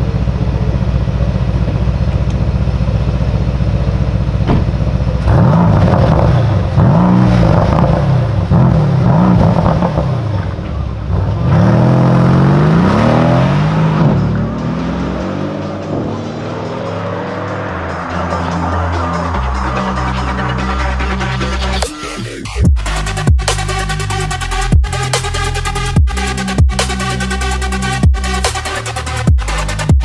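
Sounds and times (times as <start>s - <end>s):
car engine idling: 0.0s - 30.0s
car door shutting: 4.4s - 4.9s
car accelerating through gears: 5.2s - 21.0s.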